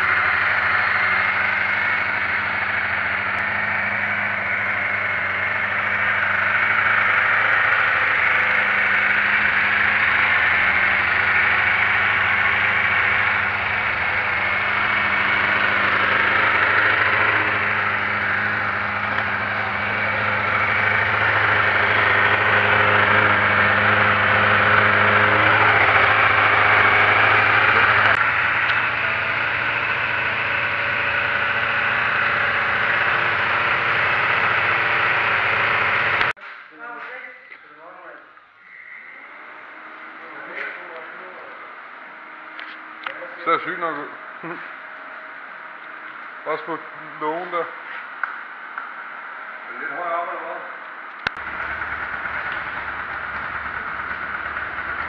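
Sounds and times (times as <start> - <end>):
motorcycle engine idling: 0.0 - 36.3, 51.3 - 55.0.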